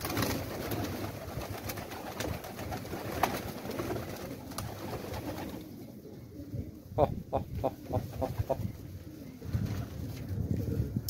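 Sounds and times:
pigeons flapping wings: 0:00.0 - 0:05.7.

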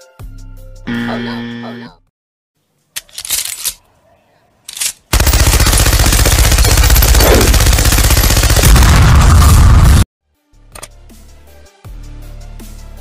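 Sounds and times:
machine gun automatic fire: 0:05.1 - 0:09.3
explosion: 0:08.6 - 0:10.1.

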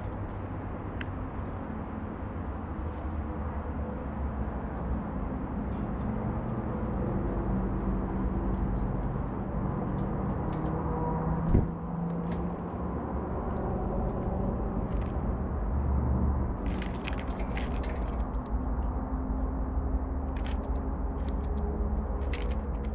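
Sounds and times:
steady low rumble: 0:00.0 - 0:22.9
birds pecking at seed: 0:16.4 - 0:22.9.

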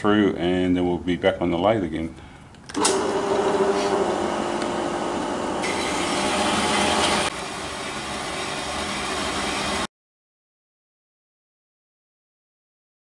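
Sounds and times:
bandsaw cutting metal: 0:02.8 - 0:07.3.

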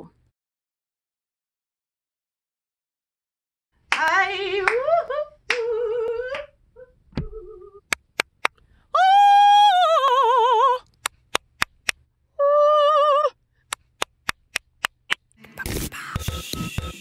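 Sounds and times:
hand claps: 0:07.9 - 0:08.6, 0:11.0 - 0:12.0, 0:13.7 - 0:15.3.

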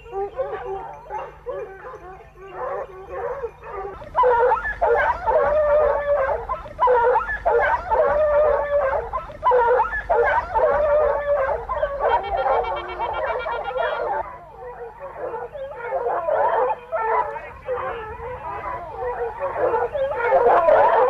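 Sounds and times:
hounds baying: 0:00.0 - 0:21.0.

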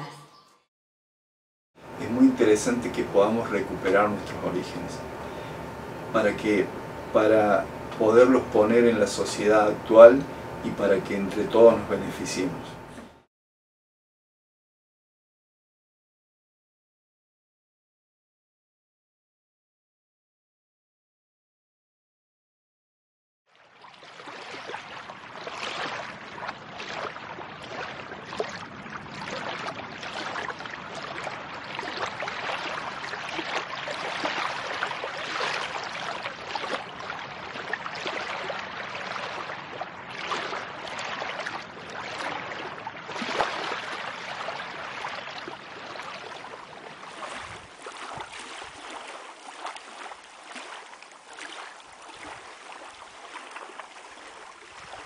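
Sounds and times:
water splashing against rocky shore: 0:24.1 - 0:55.0.

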